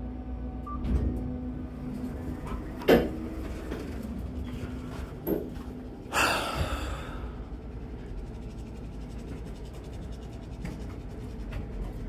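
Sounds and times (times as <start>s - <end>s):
low steady hum: 0.0s - 12.0s
person sighing: 6.1s - 7.4s.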